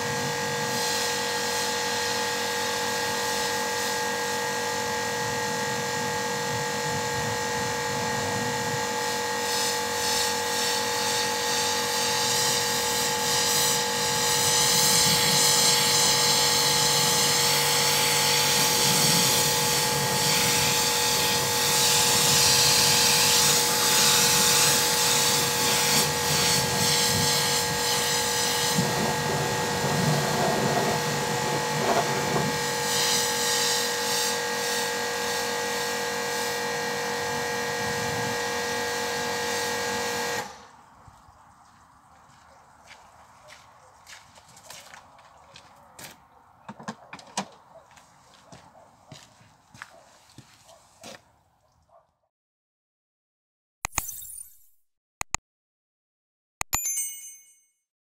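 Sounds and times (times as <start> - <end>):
pressure washer motor whining: 0.0 - 40.8
high-pressure water spray hiss: 0.6 - 4.1, 9.0 - 36.6.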